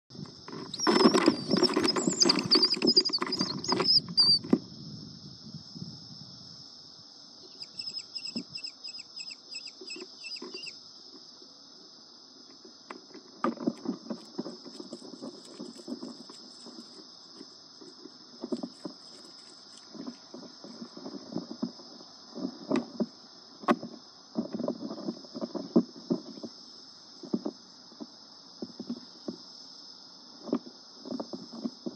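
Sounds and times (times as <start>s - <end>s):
birds scratching on wooden floor: 0.4s - 4.5s, 9.6s - 10.8s, 12.6s - 23.1s
rapid high bird calls: 0.7s - 4.5s, 7.4s - 10.8s
steady high hiss: 4.0s - 31.9s.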